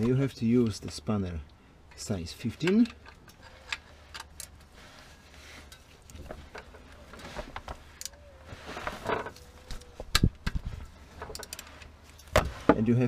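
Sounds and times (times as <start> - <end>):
gloved hands rustling: 2.6 - 12.7.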